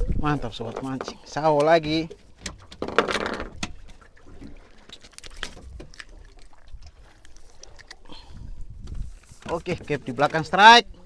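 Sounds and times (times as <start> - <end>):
water sloshing against boat: 0.0 - 11.0
low wind rumble: 8.0 - 9.4.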